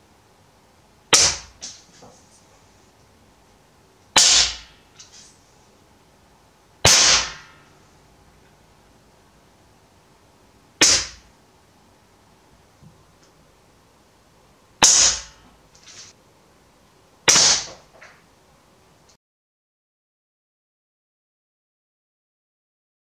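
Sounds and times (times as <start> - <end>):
air rifle shots: 1.1 - 1.8, 4.2 - 4.8, 6.8 - 7.7, 10.8 - 11.2, 14.8 - 16.1, 17.3 - 17.8.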